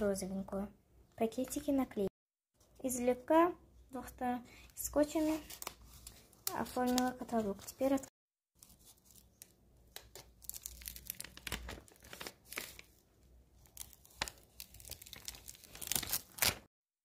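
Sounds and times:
paper and tape tearing: 13.8s - 16.6s.

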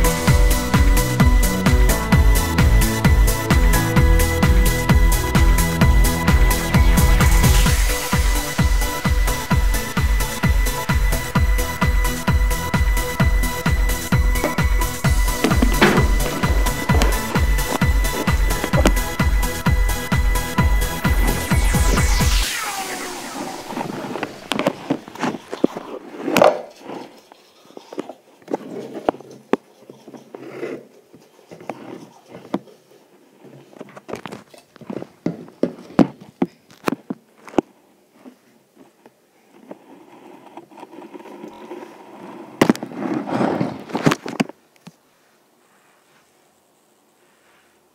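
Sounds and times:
muffled rubbing on microphone: 21.1s - 34.2s, 37.7s - 44.2s, 45.1s - 47.9s.

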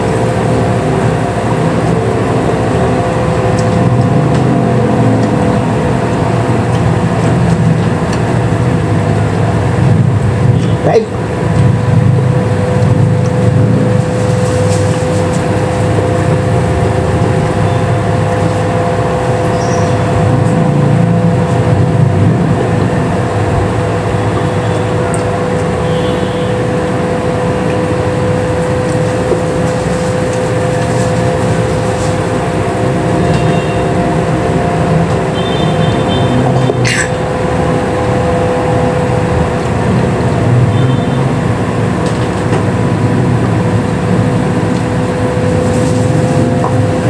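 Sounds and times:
loud machine hum: 0.0s - 47.0s.

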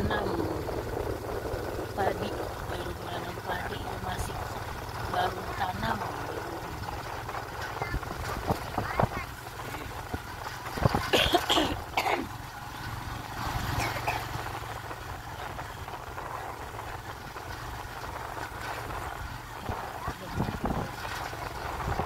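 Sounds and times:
low engine hum: 0.0s - 22.0s
wind-like noise: 14.7s - 22.0s.

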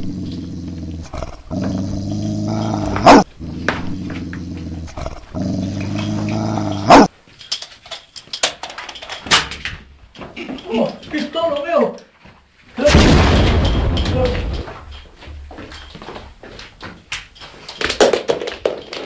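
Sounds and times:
dog growling: 0.0s - 7.1s
knocks and rustles: 0.0s - 19.0s
dog barking: 2.9s - 3.2s, 6.6s - 7.1s.

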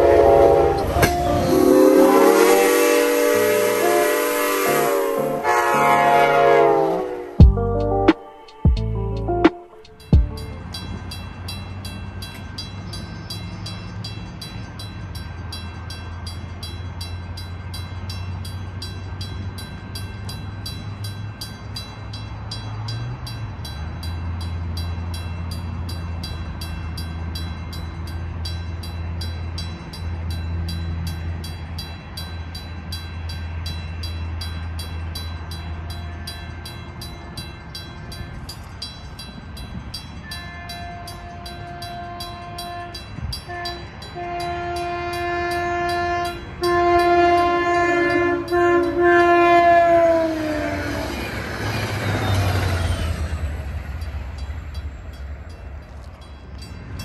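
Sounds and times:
train horn chord: 0.0s - 10.9s, 40.2s - 51.0s
crossing warning bell ringing: 0.0s - 57.0s.

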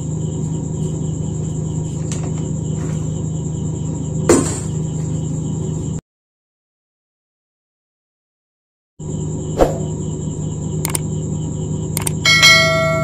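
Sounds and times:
background hum: 0.0s - 6.0s, 9.0s - 13.0s
high thin whine: 9.6s - 10.0s.

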